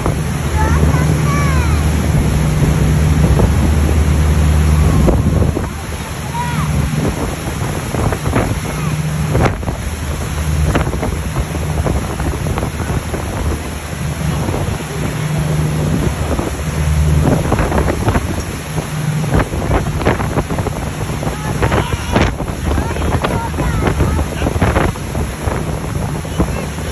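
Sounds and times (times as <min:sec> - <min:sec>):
boat engine humming: 0:00.0 - 0:26.9
wake churning: 0:00.0 - 0:26.9
wind on microphone: 0:00.0 - 0:26.9.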